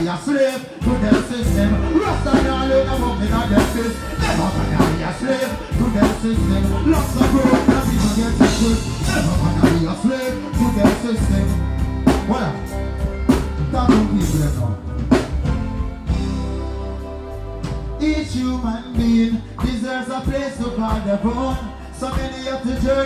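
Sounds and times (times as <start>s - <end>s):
man singing into a microphone: 0.0s - 12.8s, 13.6s - 14.8s, 18.0s - 23.0s
reggae band playing: 0.0s - 23.0s.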